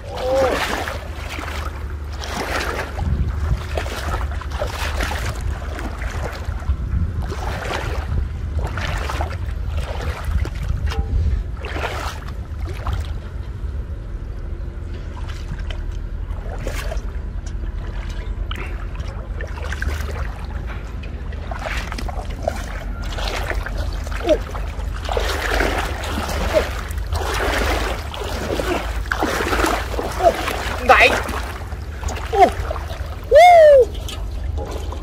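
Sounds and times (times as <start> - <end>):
low rumble: 0.0 - 35.0
wading through water: 0.0 - 35.0
water sloshing and splashing: 0.0 - 35.0.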